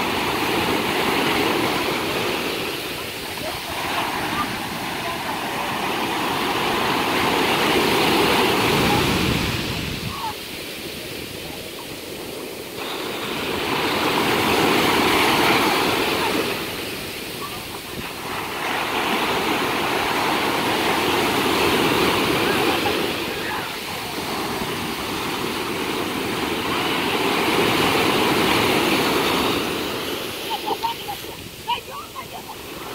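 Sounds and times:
ocean waves breaking: 0:00.0 - 0:32.9.

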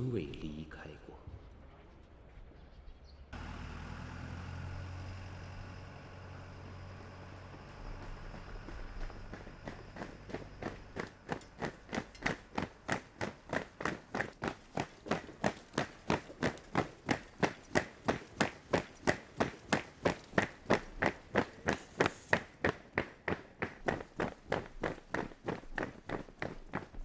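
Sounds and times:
boots marching on pavement: 0:07.0 - 0:27.0.

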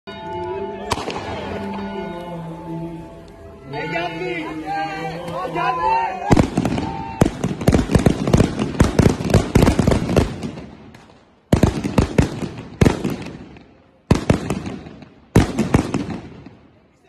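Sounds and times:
firecrackers banging: 0:00.9 - 0:01.9, 0:06.3 - 0:16.8.

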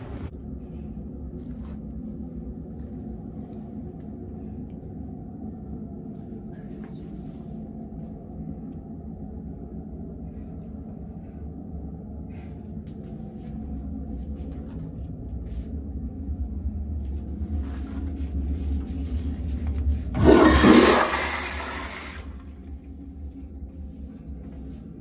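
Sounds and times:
low steady rumble: 0:00.0 - 0:25.0
toilet flushing: 0:20.1 - 0:22.6.

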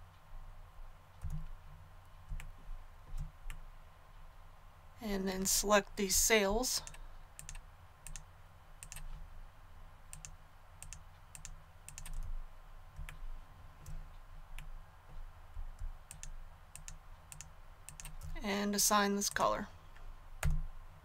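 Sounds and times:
faint low hum: 0:00.0 - 0:21.0
mouse and keyboard clicks: 0:06.8 - 0:09.1.

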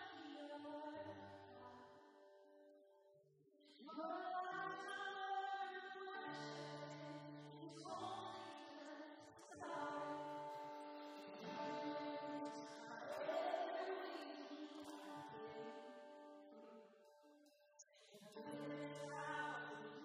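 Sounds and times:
people singing: 0:11.3 - 0:15.8, 0:17.9 - 0:20.0.

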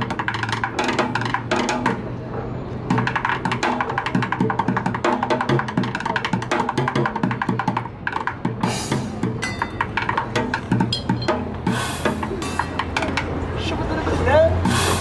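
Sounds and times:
fast drumming on buckets and pots: 0:02.9 - 0:13.4
ringing metallic hits: 0:09.3 - 0:11.8.

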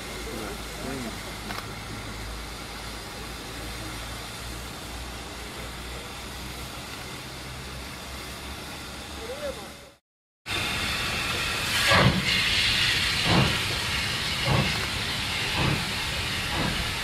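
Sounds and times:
distant steam locomotive rumble: 0:00.0 - 0:17.0
steam hissing: 0:00.0 - 0:17.0.

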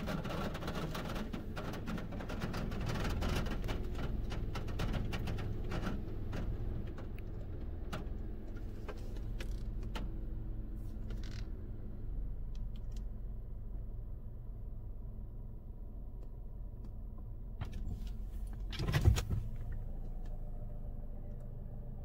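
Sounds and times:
car wash brushes slapping car: 0:00.0 - 0:11.2, 0:17.6 - 0:19.8.

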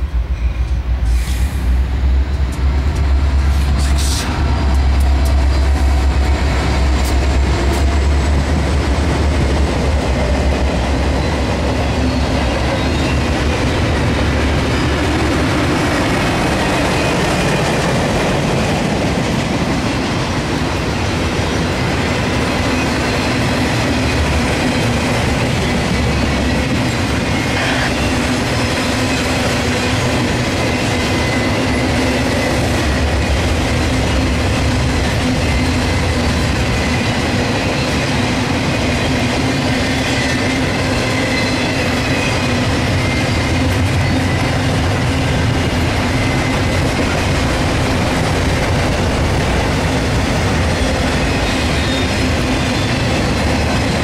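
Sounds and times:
diesel locomotive engine rumble: 0:00.0 - 0:54.0
freight cars rattling on rails: 0:00.0 - 0:54.0.

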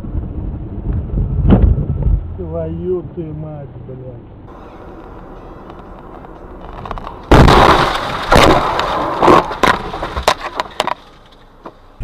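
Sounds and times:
road noise: 0:00.0 - 0:12.0
car crash impact: 0:01.4 - 0:02.3, 0:06.2 - 0:11.4
crunching blows and knocks: 0:05.0 - 0:11.3.

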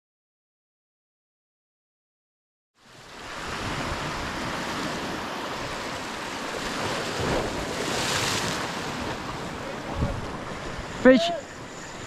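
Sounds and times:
surf washing against rocks: 0:02.8 - 0:12.0
wind rumbling on microphone: 0:03.0 - 0:12.0.

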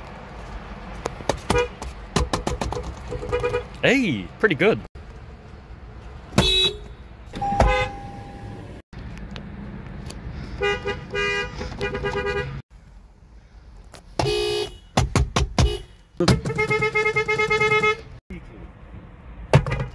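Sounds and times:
car horn honks: 0:03.1 - 0:03.7, 0:06.3 - 0:08.7, 0:10.6 - 0:12.6, 0:14.2 - 0:15.0, 0:15.6 - 0:18.2.

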